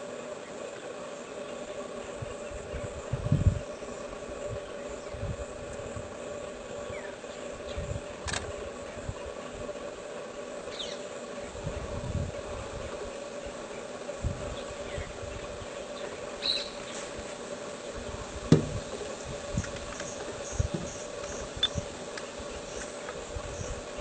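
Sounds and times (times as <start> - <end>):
insect drone: 0.0 - 24.0
low bumps: 18.4 - 19.0.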